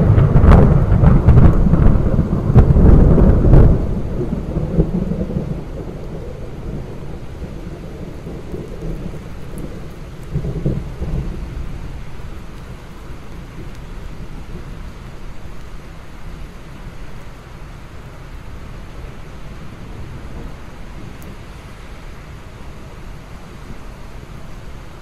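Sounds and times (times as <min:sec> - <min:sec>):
sharp thunder cracks: 0:00.0 - 0:12.0
deep thunder rumbling: 0:00.0 - 0:15.6
steady rain: 0:00.0 - 0:25.0.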